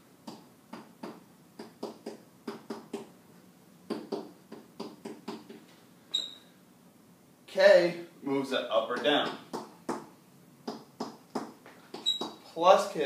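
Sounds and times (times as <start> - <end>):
marker writing on whiteboard: 0.3 - 3.1, 3.9 - 6.3, 8.9 - 12.5.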